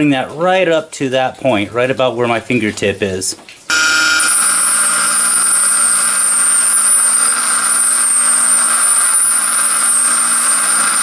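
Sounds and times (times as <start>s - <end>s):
bench grinder grinding metal: 3.7s - 11.0s.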